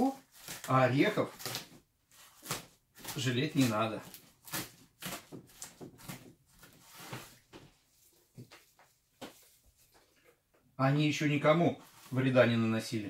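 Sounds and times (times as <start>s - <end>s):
soft rustling: 1.4s - 10.5s.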